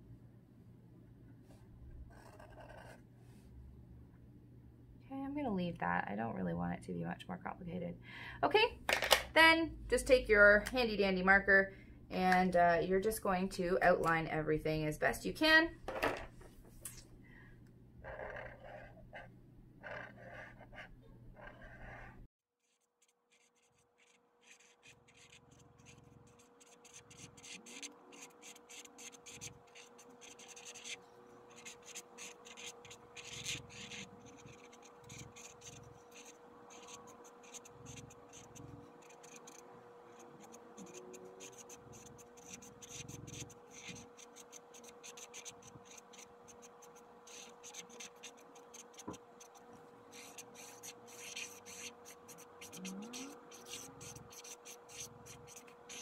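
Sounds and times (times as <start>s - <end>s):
marker scratching on canvas: 2.1s - 3.0s, 18.0s - 56.0s.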